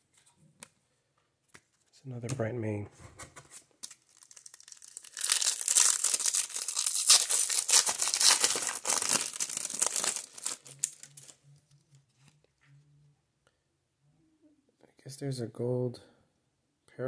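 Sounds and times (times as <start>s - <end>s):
foil wrapper tearing and crinkling: 3.8s - 11.4s.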